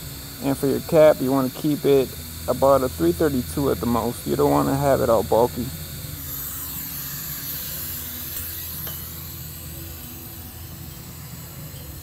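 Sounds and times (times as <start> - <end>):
welding arc hissing: 0.0 - 12.0.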